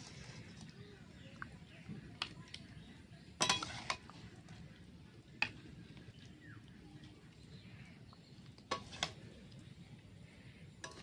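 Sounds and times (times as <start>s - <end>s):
metal spoon clinking and scraping: 3.4s - 4.2s, 8.7s - 9.2s, 10.8s - 11.0s.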